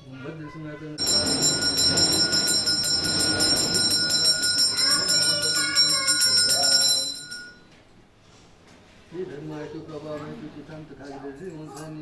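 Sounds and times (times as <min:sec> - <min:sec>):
hand bell ringing rapidly: 0:01.0 - 0:07.6.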